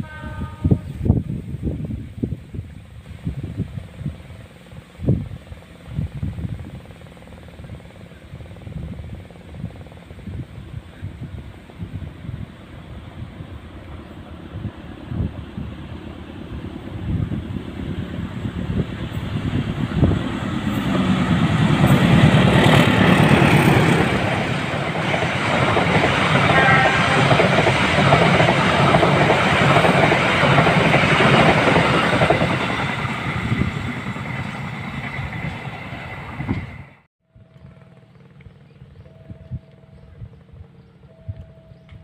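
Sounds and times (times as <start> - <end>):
diesel locomotive rumble: 0.0 - 42.0
train wheels clattering on rails: 18.8 - 36.8.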